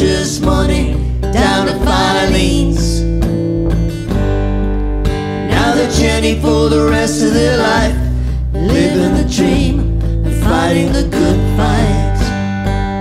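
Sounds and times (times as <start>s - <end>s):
man and woman singing: 0.0s - 3.0s, 5.4s - 12.4s
acoustic guitar strumming: 0.0s - 13.0s
electric bass line: 0.0s - 13.0s.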